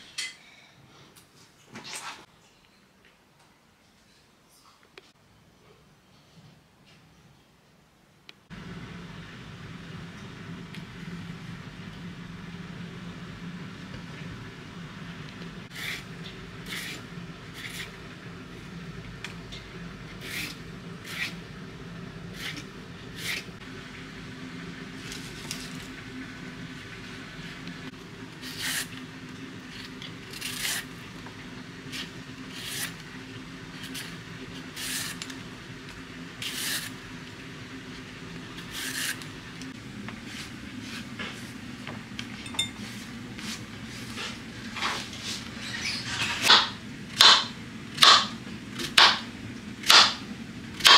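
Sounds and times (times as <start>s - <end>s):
steady low hum: 8.4s - 50.9s
vegetable peeler scraping courgette: 15.7s - 18.0s, 20.2s - 21.4s, 22.3s - 23.5s, 28.4s - 29.0s, 29.7s - 30.9s, 31.9s - 33.0s, 33.8s - 35.3s, 36.4s - 37.0s, 38.6s - 39.3s.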